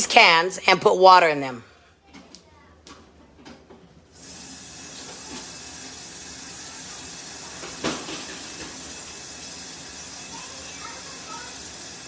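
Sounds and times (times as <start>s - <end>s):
kitchen tap running water: 4.1s - 12.0s.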